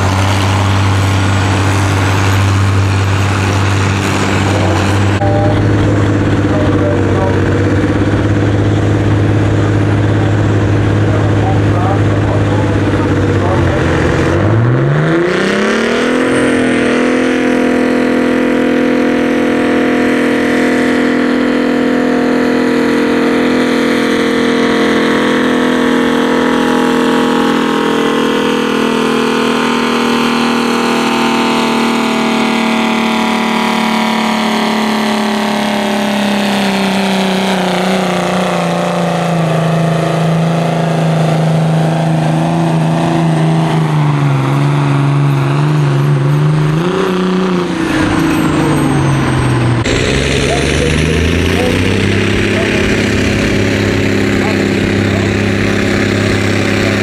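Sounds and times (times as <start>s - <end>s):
diesel tractor engine under load: 0.0s - 57.0s.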